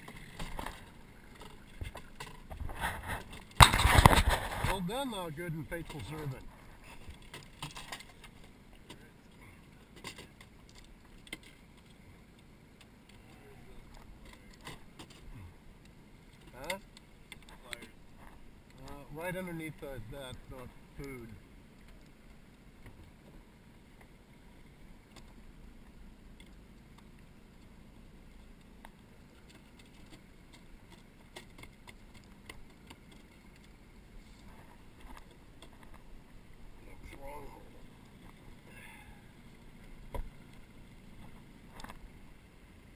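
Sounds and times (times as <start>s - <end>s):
fishing gear clicks and knocks: 0.0s - 4.8s, 5.8s - 9.1s, 9.7s - 18.9s, 28.3s - 33.8s, 34.4s - 38.6s
low steady rumble: 0.0s - 42.9s.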